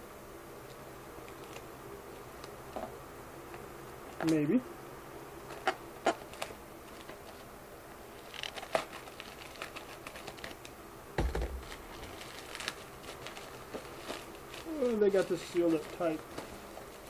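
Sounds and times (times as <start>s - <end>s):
plastic package crackling: 5.5s - 7.4s, 8.1s - 17.0s
dull thump: 11.2s - 11.9s.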